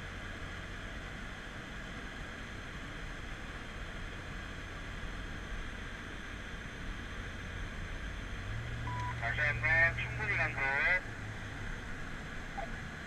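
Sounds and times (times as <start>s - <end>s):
car engine drone: 0.0s - 13.0s.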